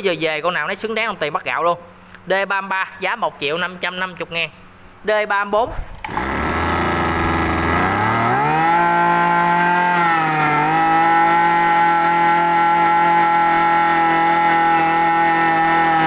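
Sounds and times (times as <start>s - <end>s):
brush cutter engine revving: 6.0s - 16.0s.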